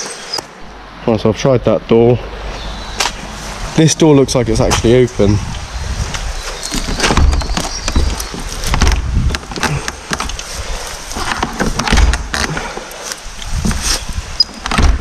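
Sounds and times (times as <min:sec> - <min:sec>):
door handle and latch rattling: 0:06.7 - 0:10.4, 0:11.2 - 0:12.5, 0:14.4 - 0:15.0
dull thumps: 0:06.7 - 0:10.4, 0:11.2 - 0:12.8.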